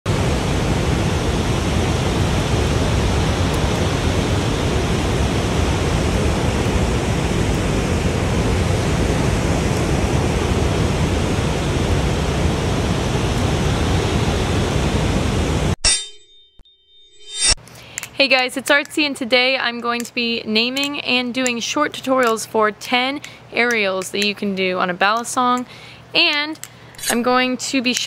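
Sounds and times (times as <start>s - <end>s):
waterfall rushing: 0.1s - 15.7s.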